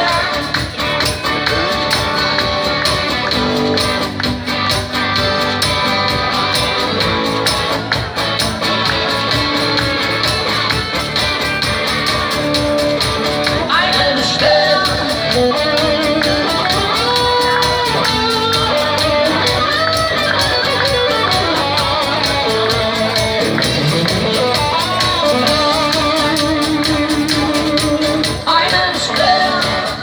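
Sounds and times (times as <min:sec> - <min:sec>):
woman singing: 0:00.0 - 0:00.6, 0:13.6 - 0:16.4, 0:28.0 - 0:30.0
electric guitar: 0:00.0 - 0:30.0
live band music: 0:00.0 - 0:30.0.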